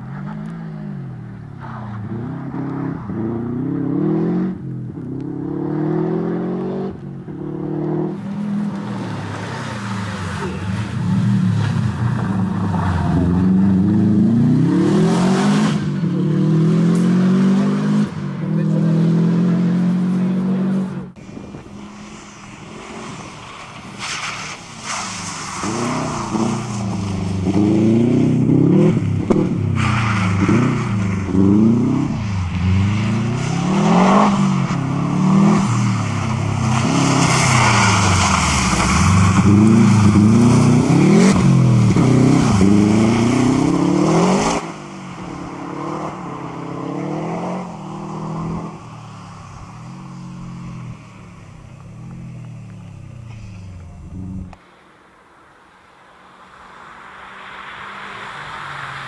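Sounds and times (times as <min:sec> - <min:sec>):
rally car engine revving: 0:00.0 - 0:21.8, 0:25.2 - 0:48.8.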